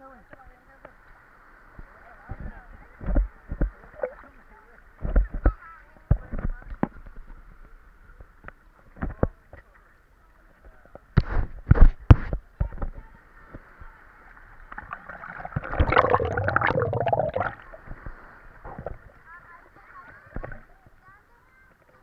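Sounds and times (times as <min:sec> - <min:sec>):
muffled underwater gurgling: 0:14.7 - 0:17.9.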